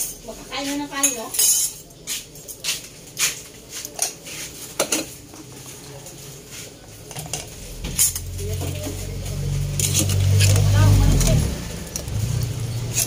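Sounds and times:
metal utensil clinking on pot: 0:00.9 - 0:01.9.

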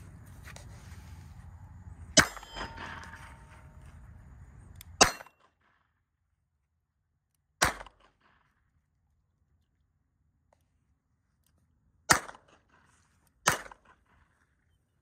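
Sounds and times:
faint ringing: 0:01.5 - 0:04.7
pistol shots: 0:02.2 - 0:03.4, 0:07.6 - 0:08.3, 0:12.1 - 0:12.6, 0:13.4 - 0:13.9.

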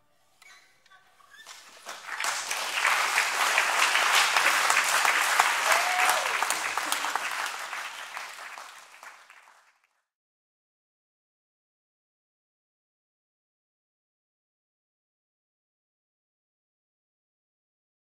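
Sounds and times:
audience applauding: 0:01.4 - 0:10.0.

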